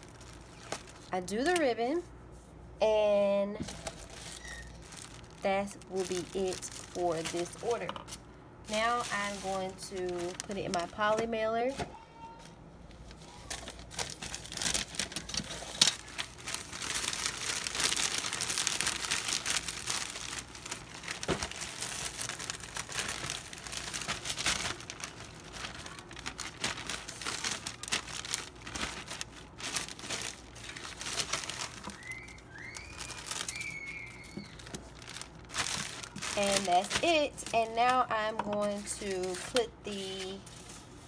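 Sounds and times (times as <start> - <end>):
plastic mailer crinkling: 0.0 - 2.0, 3.2 - 8.1, 8.7 - 11.9, 12.9 - 41.0.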